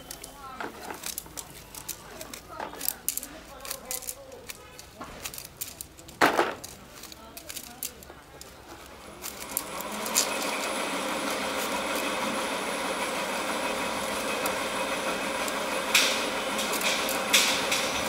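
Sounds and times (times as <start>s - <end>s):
motor running: 9.0s - 18.0s
arrows clacking: 14.1s - 18.0s.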